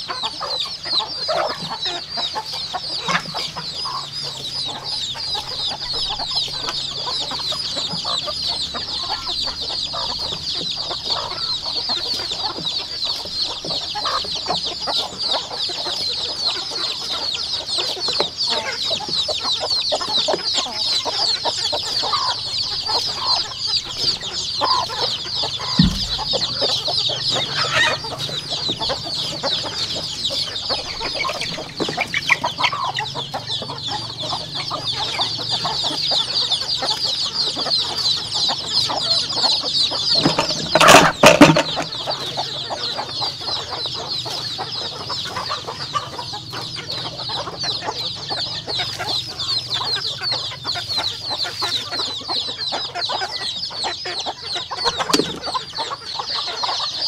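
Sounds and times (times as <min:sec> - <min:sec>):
chicks peeping: 0:00.0 - 0:57.0
low thump: 0:25.8 - 0:26.6.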